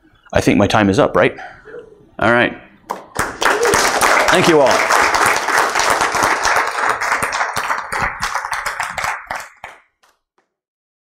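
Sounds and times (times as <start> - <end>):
audience applauding: 2.9 - 10.2.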